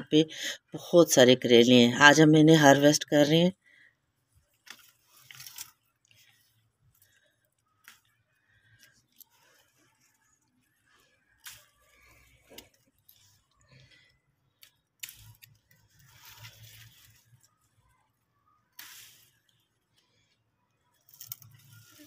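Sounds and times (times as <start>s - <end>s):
leaves rustling: 4.2s - 20.3s, 20.9s - 22.0s
scissors snipping stems: 11.3s - 13.2s, 14.6s - 17.2s, 18.7s - 19.5s.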